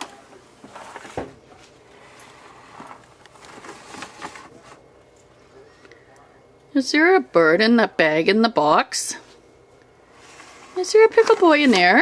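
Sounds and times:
paper bag rustling: 2.0s - 4.8s, 10.3s - 12.0s.

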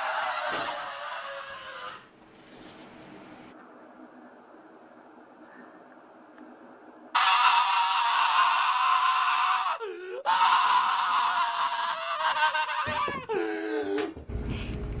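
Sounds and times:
person screaming: 0.0s - 2.0s, 7.2s - 14.1s.

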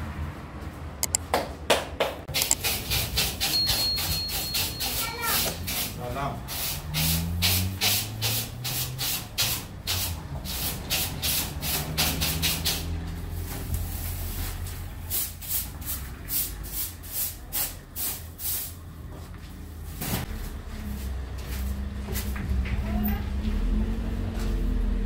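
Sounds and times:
brush sweeping metal tray: 2.6s - 18.8s.

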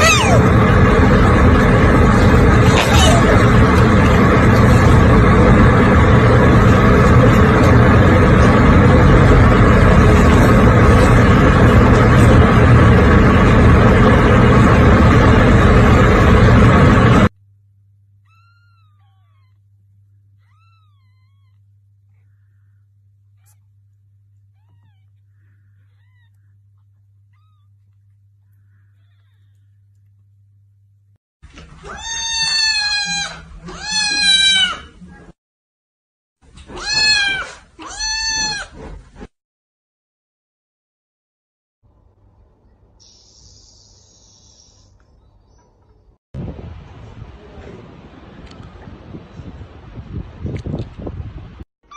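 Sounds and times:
kittens mewing: 0.0s - 0.9s, 2.5s - 4.0s, 18.2s - 23.8s, 24.4s - 27.9s, 36.6s - 38.8s
loud steady rumbling: 0.0s - 17.4s, 46.4s - 51.6s
low steady hum: 0.0s - 31.2s.

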